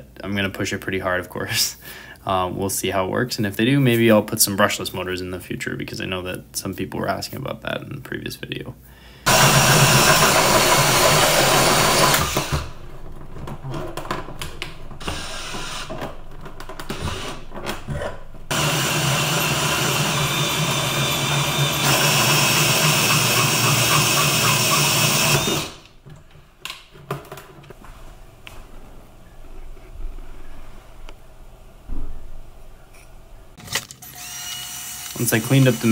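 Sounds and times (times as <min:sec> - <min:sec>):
power drill cutting plastic: 0:09.3 - 0:12.8, 0:15.0 - 0:16.1, 0:16.8 - 0:17.5, 0:18.5 - 0:25.9, 0:33.6 - 0:35.9.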